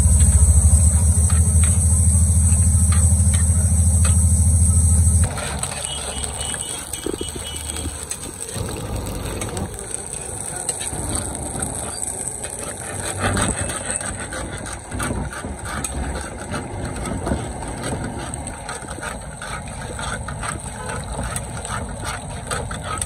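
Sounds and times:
food sizzling in woks: 0.0 - 14.3
gas burners rumbling: 0.0 - 23.0.

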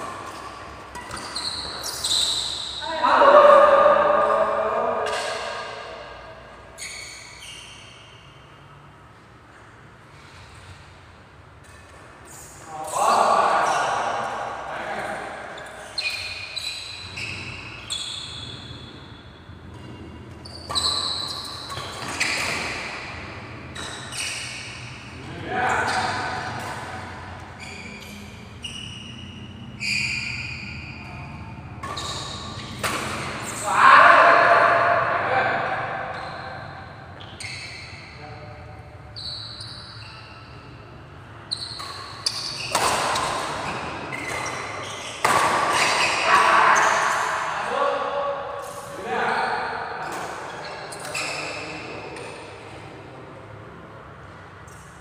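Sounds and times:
shoes squeaking on court floor: 0.0 - 3.0, 4.2 - 35.0, 35.6 - 47.6, 48.4 - 52.9, 54.1 - 55.0
racket hitting shuttlecock: 25.8 - 27.4, 31.8 - 33.5, 41.7 - 47.5.

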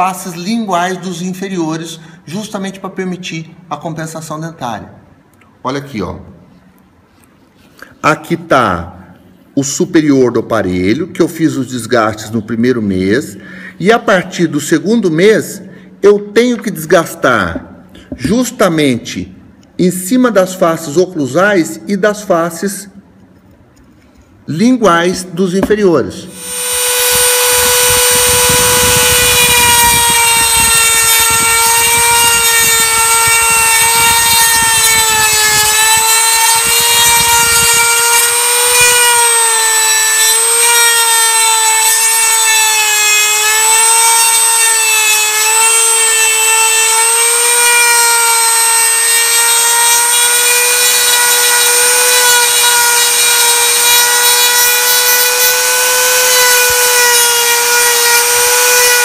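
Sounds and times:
grinding rasp: 26.3 - 59.0
rotary tool whining: 26.3 - 59.0.

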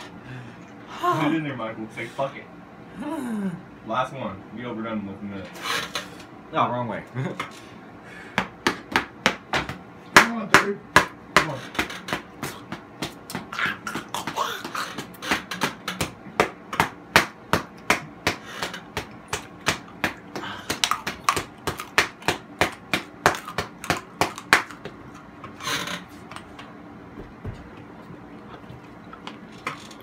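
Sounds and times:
rapid sharp taps: 8.4 - 25.6
person breathing out: 20.3 - 20.8.

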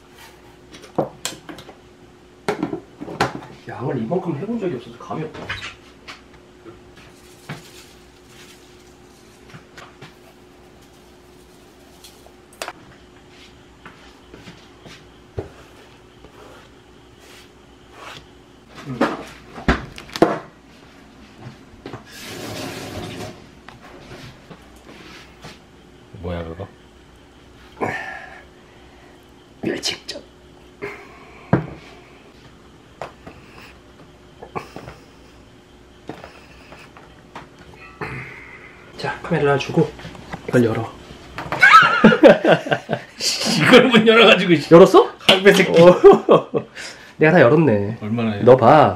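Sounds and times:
faint steady hum: 0.0 - 48.9
objects knocking and clunking: 2.4 - 3.6.

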